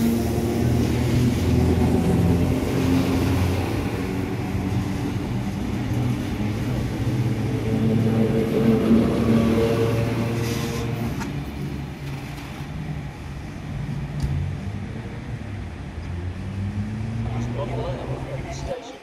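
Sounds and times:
electric train passing: 0:00.0 - 0:19.0.

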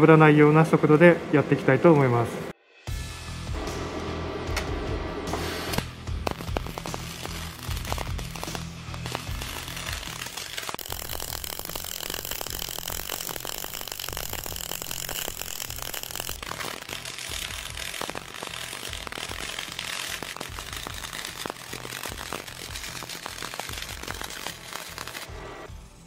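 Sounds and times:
welding arc crackling: 0:05.4 - 0:25.7.

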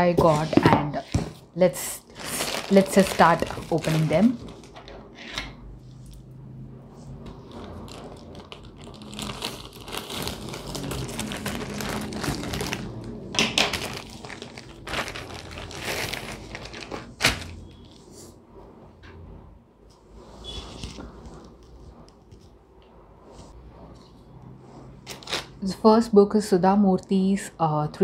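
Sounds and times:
plastic mailer crinkling: 0:02.0 - 0:04.8, 0:07.5 - 0:17.9.

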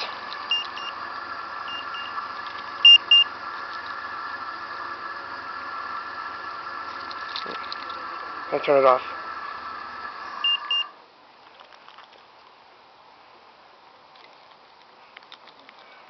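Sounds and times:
short high electronic beeps: 0:02.8 - 0:03.3.

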